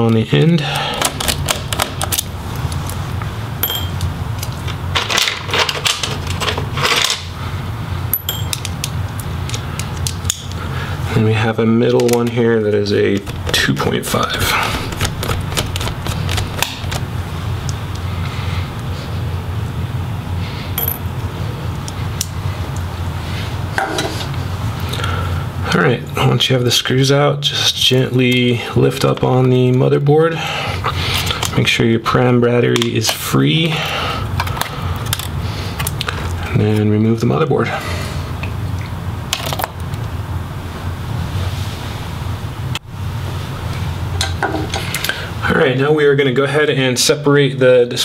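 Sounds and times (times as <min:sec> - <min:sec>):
steady low hum: 0:00.0 - 0:48.0
short metallic rings: 0:03.6 - 0:04.0, 0:08.1 - 0:08.6
small screws clicking and clinking: 0:03.6 - 0:04.1
small screws clinking: 0:03.6 - 0:04.1, 0:08.1 - 0:08.7, 0:20.8 - 0:21.0.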